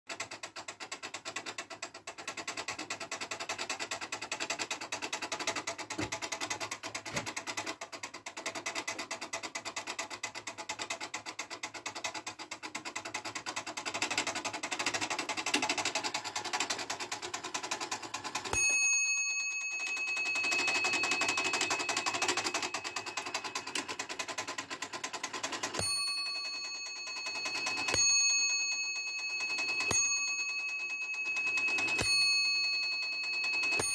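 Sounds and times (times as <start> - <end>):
clock works clicking: 0.1 - 33.9
clock bell ringing: 18.4 - 24.1, 25.5 - 33.9.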